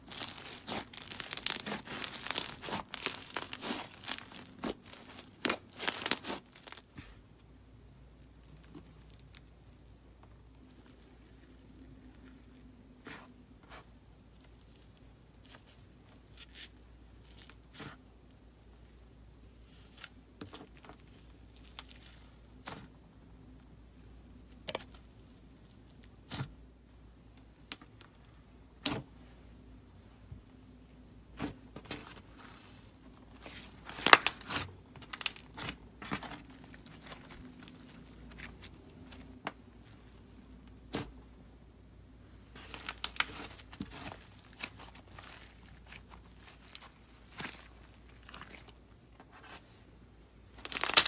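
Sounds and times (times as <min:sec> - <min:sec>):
slime popping and crackling: 0:00.0 - 0:07.0, 0:33.4 - 0:39.4, 0:42.5 - 0:48.8, 0:50.6 - 0:51.0.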